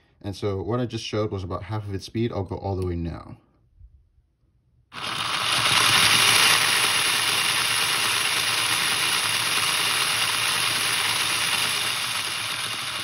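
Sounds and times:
motor whirring: 0:04.9 - 0:13.0.

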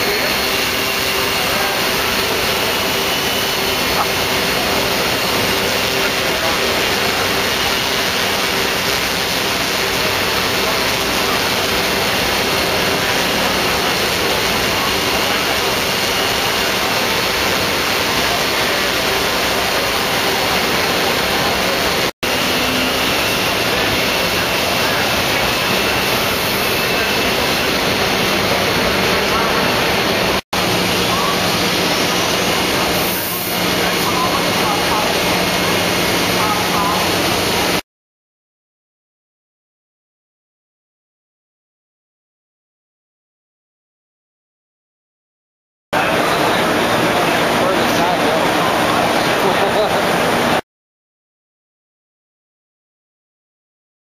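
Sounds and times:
drone propellers whirring: 0:00.0 - 0:37.8.

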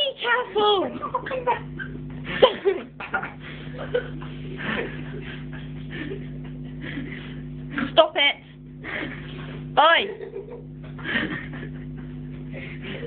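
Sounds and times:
low hum: 0:00.0 - 0:13.0
breathy laughs: 0:01.0 - 0:08.0, 0:08.8 - 0:09.6, 0:10.2 - 0:13.0
people grunting: 0:03.8 - 0:06.2.

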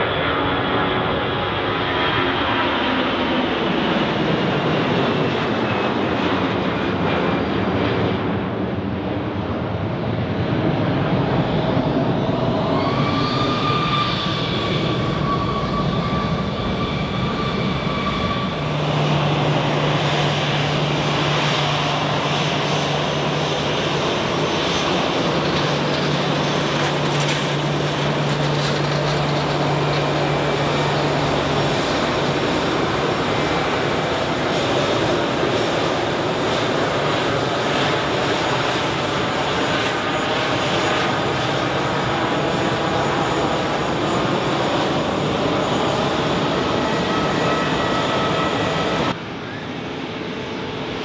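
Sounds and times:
jet airliners taxiing: 0:00.0 - 0:51.0
jet engines running: 0:00.0 - 0:51.0
steady high whine: 0:11.0 - 0:51.0.

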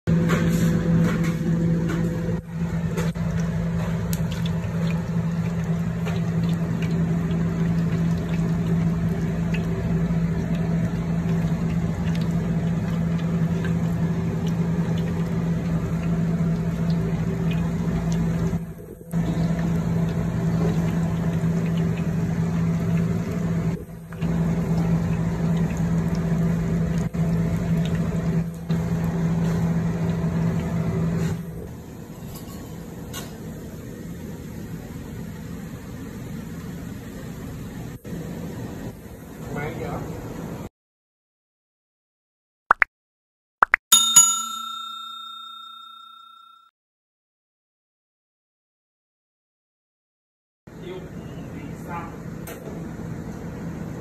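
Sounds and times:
meat deep-frying in oil: 0:00.1 - 0:40.6.

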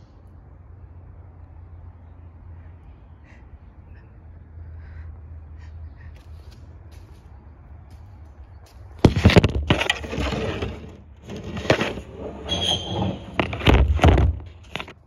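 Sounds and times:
short squeak: 0:12.2 - 0:13.7.

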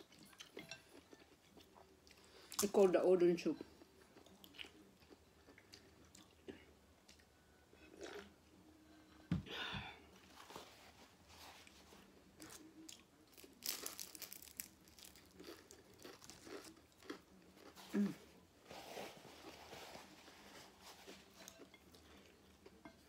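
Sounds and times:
crunchy chewing: 0:12.4 - 0:18.2.

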